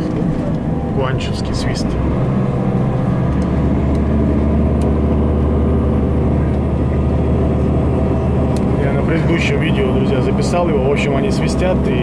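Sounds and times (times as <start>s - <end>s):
bus engine drone: 0.0s - 12.0s
road noise: 0.0s - 12.0s.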